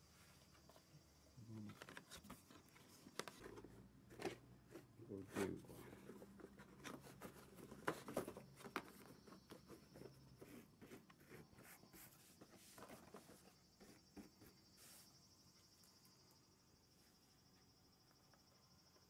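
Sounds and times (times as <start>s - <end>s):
rustling and light clicks: 1.6s - 10.2s.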